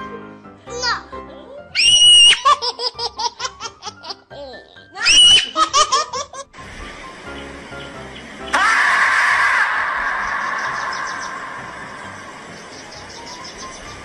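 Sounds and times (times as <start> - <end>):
high-pitched laughter: 1.3 - 6.5.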